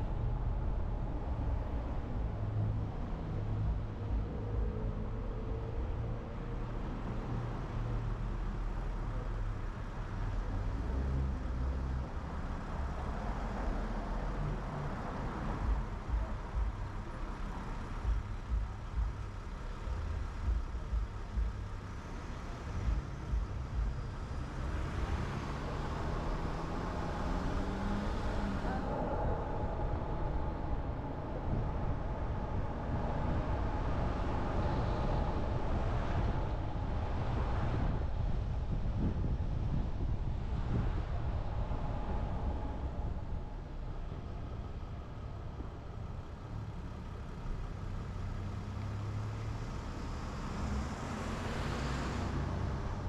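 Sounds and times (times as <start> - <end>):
road traffic rumble: 0.0 - 53.0
vehicle engine revving: 19.8 - 30.6.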